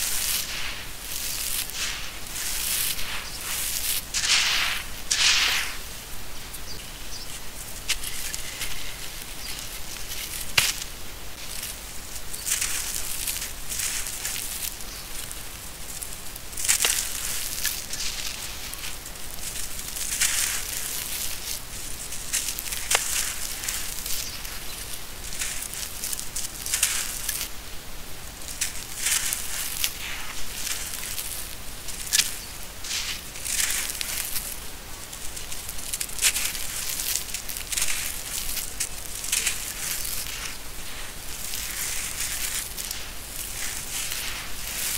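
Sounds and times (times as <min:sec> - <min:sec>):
gritty crunching by hand: 0:00.0 - 0:05.9, 0:07.8 - 0:27.4, 0:28.5 - 0:44.9
lumps cracking: 0:00.1 - 0:05.8.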